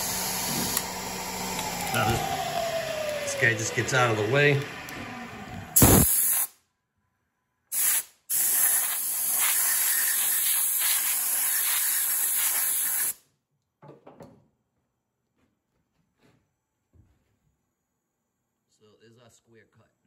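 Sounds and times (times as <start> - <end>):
compressed air blow gun hissing: 5.8 - 6.5, 7.7 - 13.2.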